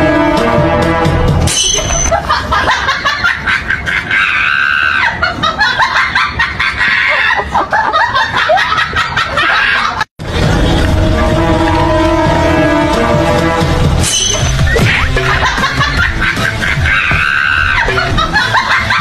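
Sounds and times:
crowd screaming and laughing: 2.1 - 10.1, 14.6 - 19.0
loud high-pitched scream: 4.1 - 5.2.

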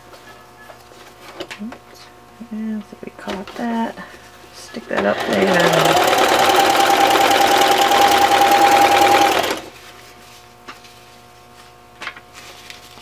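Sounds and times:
sewing machine running: 5.0 - 9.7.

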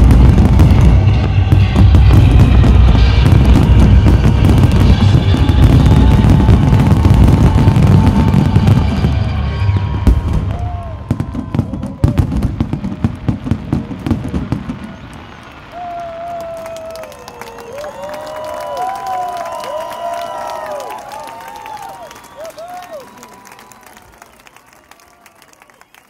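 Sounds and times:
music: 0.0 - 11.5
fireworks bursting: 0.0 - 20.9.

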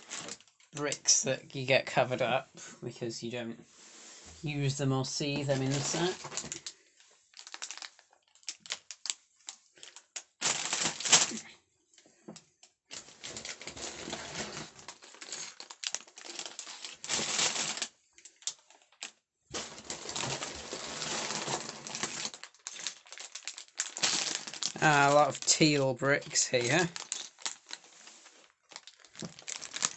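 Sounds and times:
plastic bag crinkling: 5.2 - 6.7, 7.3 - 11.5, 12.9 - 29.9.

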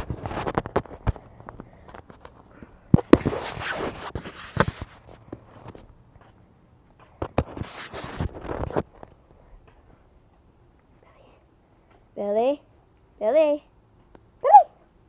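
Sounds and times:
camera scuffing on pavement: 0.0 - 10.9.

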